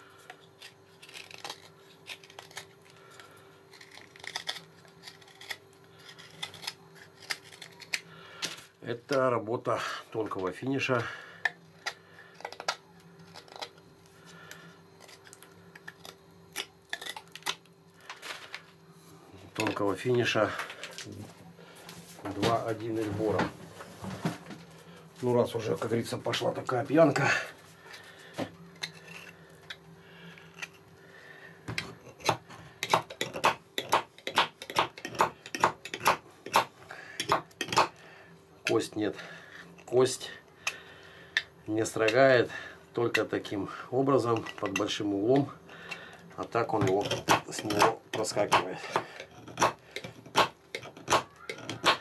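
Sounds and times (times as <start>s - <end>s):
knife scraping bone: 0.2s - 2.9s, 3.7s - 8.1s, 28.8s - 29.8s, 46.7s - 52.0s.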